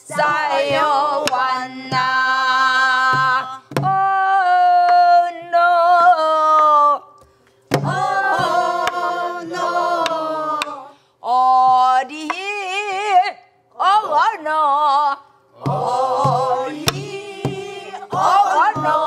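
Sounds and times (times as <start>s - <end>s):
group of voices singing: 0.0s - 6.3s, 7.8s - 11.4s, 15.5s - 19.0s
woman singing with vibrato: 0.0s - 7.2s, 7.8s - 19.0s
barrel drum strokes: 15.6s - 19.0s.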